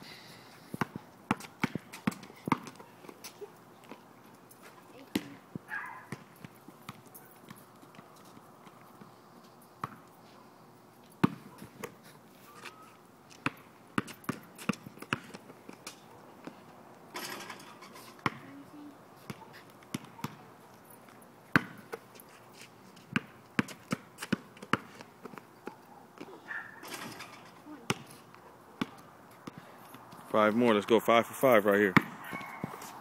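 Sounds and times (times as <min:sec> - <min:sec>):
basketball bouncing on pavement: 0:00.7 - 0:04.1, 0:04.7 - 0:09.1, 0:09.8 - 0:10.1, 0:11.2 - 0:12.0, 0:12.7 - 0:22.2, 0:22.9 - 0:30.2, 0:31.8 - 0:33.0.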